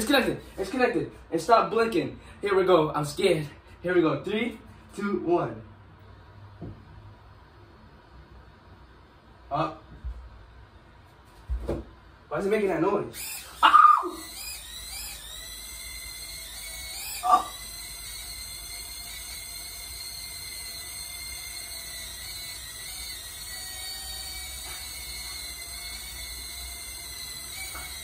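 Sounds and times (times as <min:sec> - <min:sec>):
drone propellers whining: 0:13.2 - 0:28.0.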